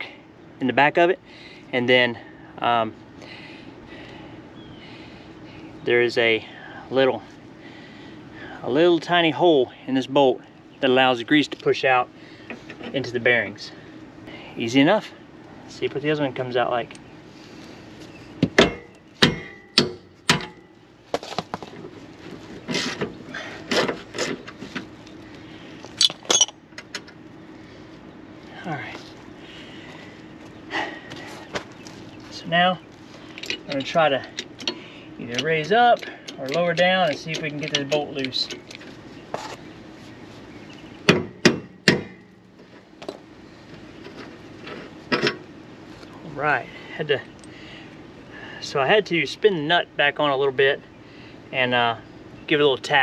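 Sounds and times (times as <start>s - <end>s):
metal clicks: 33.3s - 38.9s
metal clanks from wrench: 33.4s - 38.8s.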